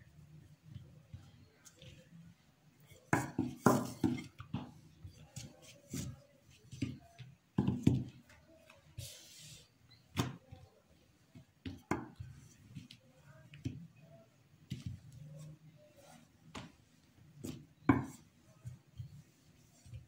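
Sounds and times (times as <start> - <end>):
rolling pin knocking on countertop: 3.1 - 4.7, 17.4 - 18.8.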